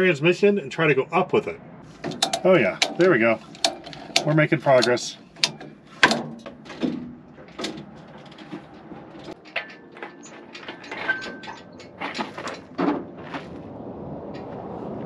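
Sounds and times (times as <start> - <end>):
metal clunks and scrapes: 1.8 - 13.5.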